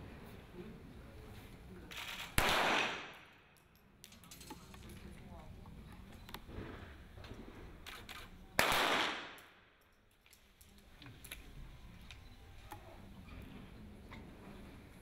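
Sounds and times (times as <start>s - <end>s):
faint clicks or distant shots: 1.9s - 5.1s, 6.2s - 11.5s
pistol shot: 2.2s - 3.3s, 8.6s - 9.7s.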